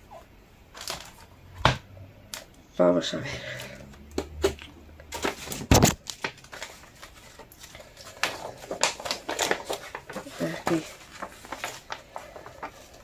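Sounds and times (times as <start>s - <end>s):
paper and cardboard rustling: 5.1s - 13.0s.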